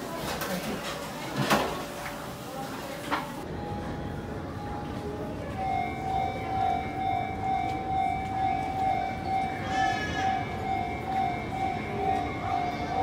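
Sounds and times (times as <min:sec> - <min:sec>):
electronic warning beeps: 0:03.5 - 0:13.0.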